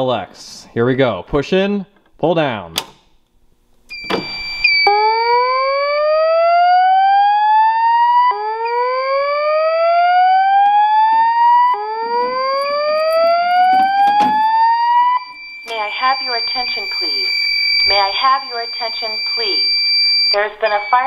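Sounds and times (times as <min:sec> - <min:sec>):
steady high-pitched tone: 0:04.0 - 0:21.0
alarm handle clatter: 0:12.1 - 0:14.8.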